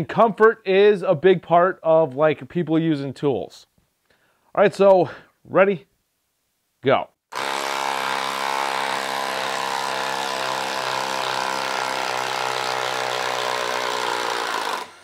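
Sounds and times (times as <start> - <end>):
impact driver rattling: 7.3 - 15.0.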